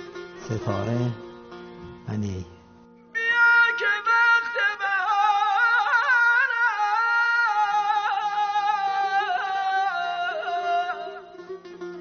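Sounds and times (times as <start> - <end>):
plucked lute notes: 0.0 - 3.2, 8.9 - 12.0
ornamented vocal melody: 2.5 - 12.0.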